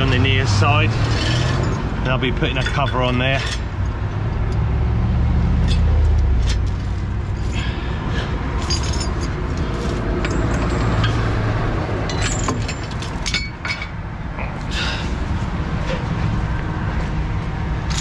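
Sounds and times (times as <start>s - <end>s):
metal chain clinking: 1.0s - 1.9s, 5.6s - 7.6s, 8.5s - 14.0s.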